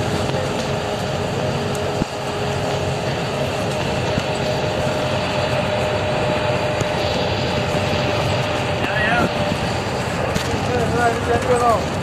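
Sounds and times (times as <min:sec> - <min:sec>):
bus engine and road noise: 0:00.0 - 0:12.0.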